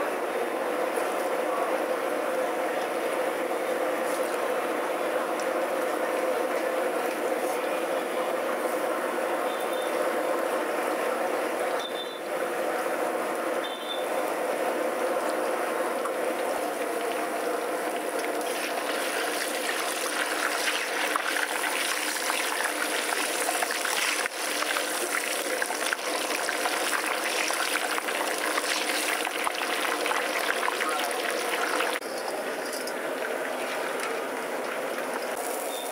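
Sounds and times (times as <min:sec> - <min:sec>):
fish deep-frying in oil: 0:13.0 - 0:35.9.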